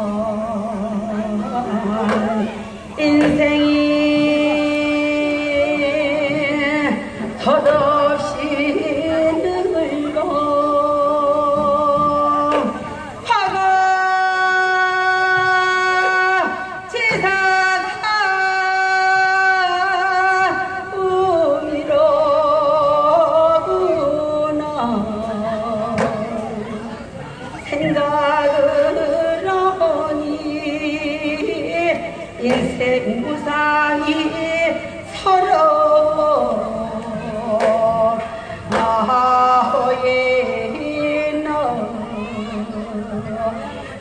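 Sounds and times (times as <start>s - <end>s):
folk singing with vibrato: 0.0s - 44.0s
percussion strikes: 2.0s - 4.7s, 11.3s - 13.8s, 36.0s - 41.0s.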